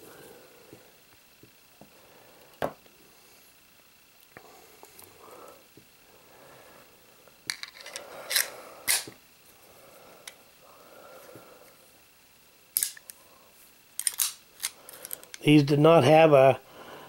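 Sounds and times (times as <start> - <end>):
pistol slide metallic clicks: 7.8 - 9.1, 12.8 - 13.1, 14.0 - 14.8.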